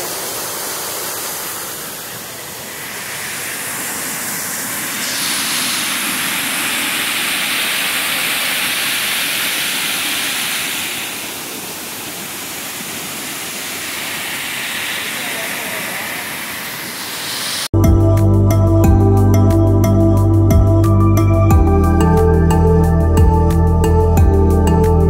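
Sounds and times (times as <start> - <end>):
waterfall rushing: 0.0 - 17.7.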